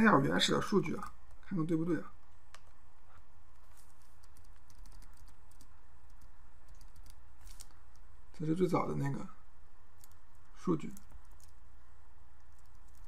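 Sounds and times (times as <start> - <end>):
steady low hum: 0.0 - 13.0
computer keyboard and mouse clicks: 4.0 - 8.0, 10.0 - 11.6, 12.4 - 13.0.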